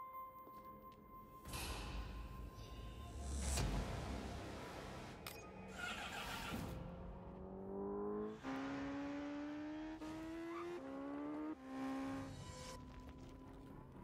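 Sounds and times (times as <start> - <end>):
motorcycle engine accelerating: 6.6 - 12.7.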